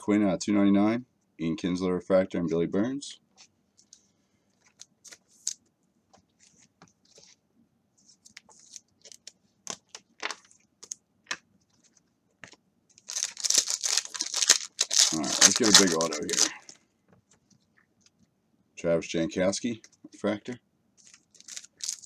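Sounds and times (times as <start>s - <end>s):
card pack wrapper ripping: 13.0s - 16.7s, 21.0s - 22.0s.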